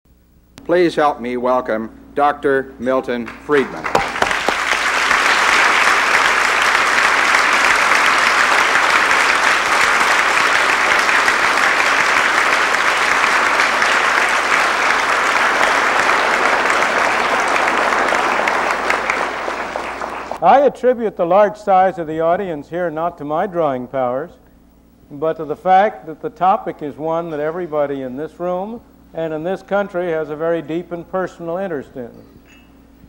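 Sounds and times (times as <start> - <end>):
audience applauding: 3.3 - 20.4.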